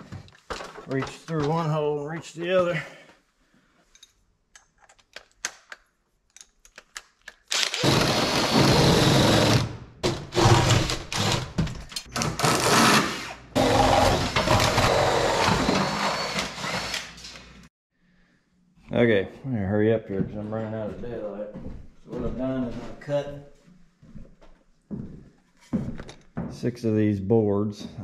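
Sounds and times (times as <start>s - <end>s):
cordless drill boring through wood: 7.5s - 9.7s, 10.3s - 11.6s, 12.2s - 17.4s.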